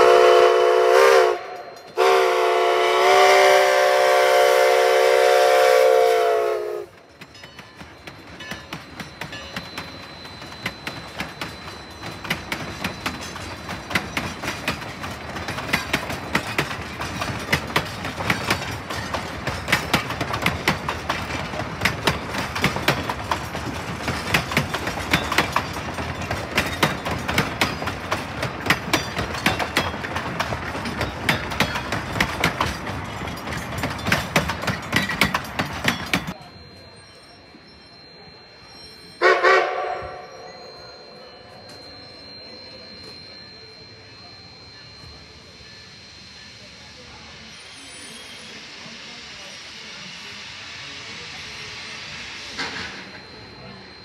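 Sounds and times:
steady train rumble: 0.0s - 54.0s
train wheels clacking over rail joints: 6.9s - 36.6s.

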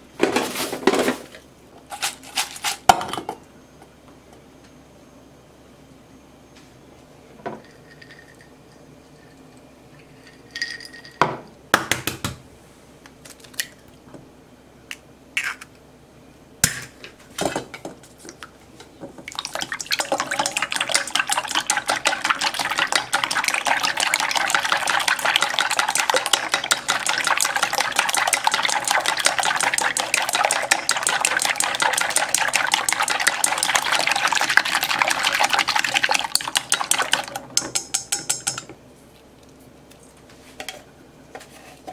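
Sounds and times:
chopsticks beating eggs in metal bowl: 19.4s - 38.7s.

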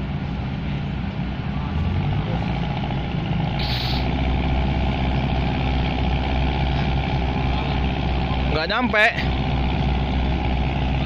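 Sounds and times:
diesel engine running: 0.0s - 11.0s
brief hiss: 3.6s - 4.1s.

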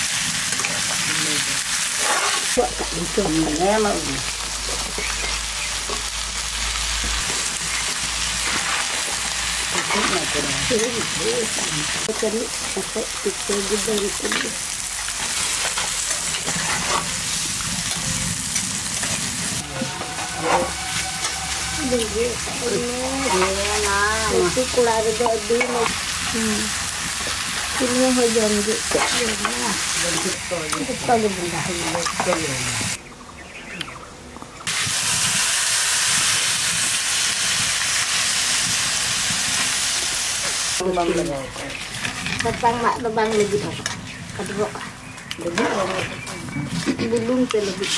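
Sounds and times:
food sizzling in a pan: 0.0s - 33.0s, 34.7s - 46.0s
spatula scraping metal pan: 19.0s - 24.0s.

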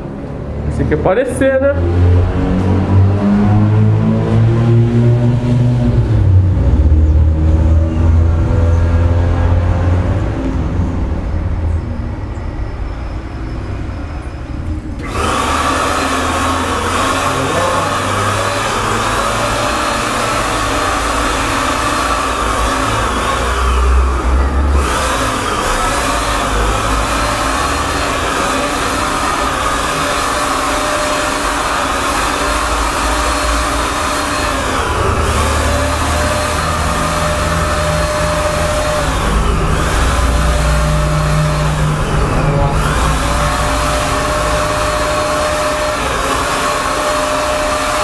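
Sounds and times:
paint spray gun hissing: 15.0s - 24.0s, 24.7s - 42.2s.

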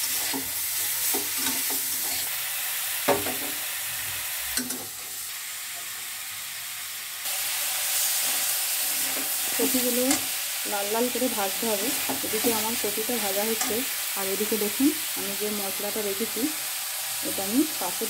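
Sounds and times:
spatula stirring against pan: 0.0s - 2.3s, 7.9s - 10.5s
vegetables sizzling in oil: 0.0s - 18.0s.

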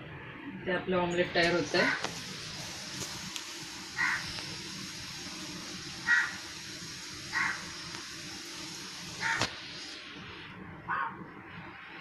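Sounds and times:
omelette sizzling in pan: 1.3s - 10.6s
crow cawing: 4.0s - 4.3s, 6.0s - 6.4s, 7.3s - 7.7s, 9.2s - 9.5s.

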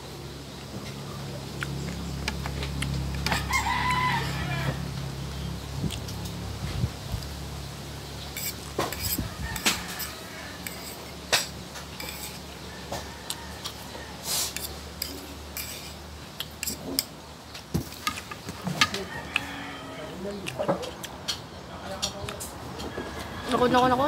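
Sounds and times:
chewing: 1.4s - 3.6s, 5.8s - 6.4s, 13.0s - 17.1s
fork clinking on plate: 8.4s - 12.4s.

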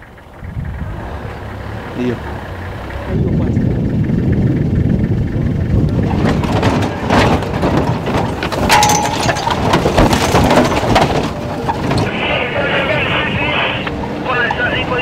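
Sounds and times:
engine and road rumble: 0.0s - 15.0s
rattling and knocking: 2.3s - 12.1s.

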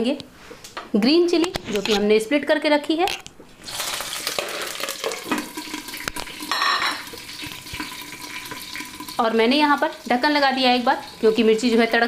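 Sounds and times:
chillies sizzling in hot oil: 3.6s - 12.0s.

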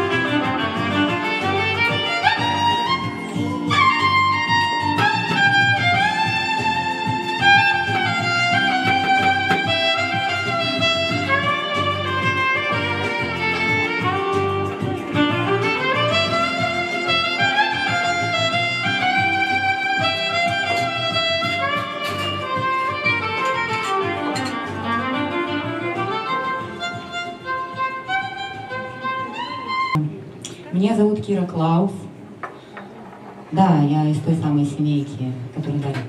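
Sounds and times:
violin melody with slides: 0.0s - 30.0s
steady accompaniment: 0.0s - 30.8s.

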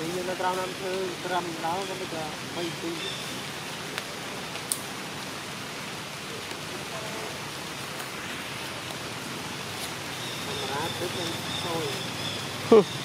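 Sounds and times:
forest background hiss: 0.0s - 13.0s.

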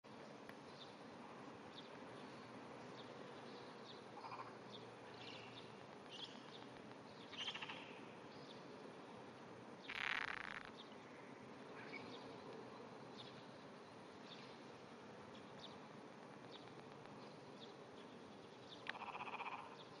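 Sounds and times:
frog trembling pulsed call: 4.2s - 4.6s, 7.4s - 8.0s, 9.9s - 10.7s, 18.8s - 19.9s.

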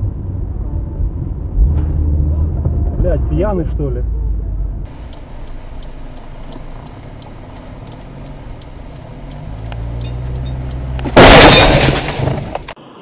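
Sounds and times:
car engine accelerating: 0.0s - 11.2s
loud collision crash: 11.1s - 12.7s.

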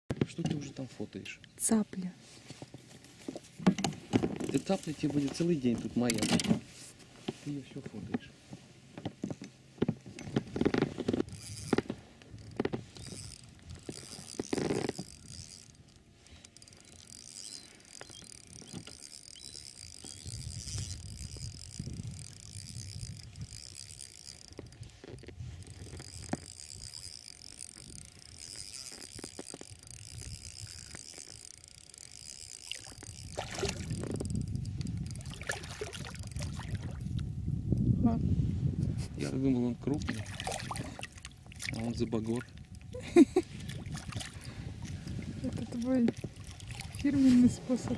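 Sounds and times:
fishing reel cranking: 10.2s - 37.1s
fish splashing in water: 35.1s - 37.0s.

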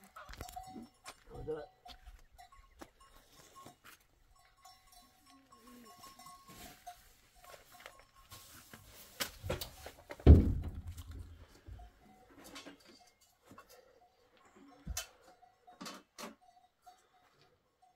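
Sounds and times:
light tinkling bells: 0.0s - 9.1s, 11.5s - 17.9s
loud thump: 10.2s - 11.0s.

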